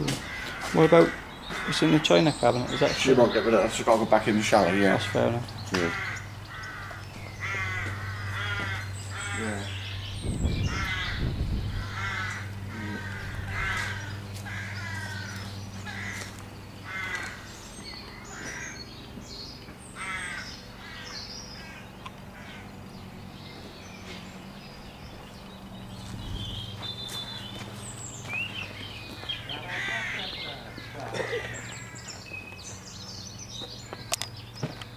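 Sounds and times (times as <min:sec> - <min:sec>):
crow cawing: 0:00.0 - 0:09.9, 0:10.5 - 0:18.9, 0:19.9 - 0:22.8, 0:27.1 - 0:27.7, 0:29.1 - 0:32.2
steady low hum: 0:00.0 - 0:34.9
low rumble: 0:07.0 - 0:18.2, 0:22.7 - 0:29.1.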